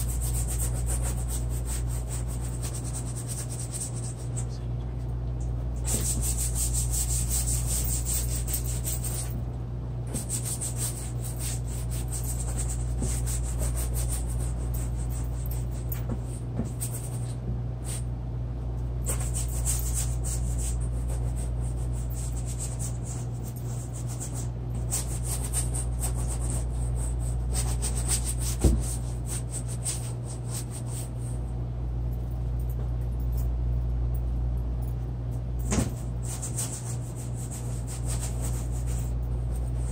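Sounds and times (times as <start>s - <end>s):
drawing tool scratching paper: 0.0s - 4.4s, 5.8s - 9.4s, 10.1s - 15.9s, 19.1s - 31.2s, 36.0s - 39.9s
steady low hum: 0.0s - 39.9s.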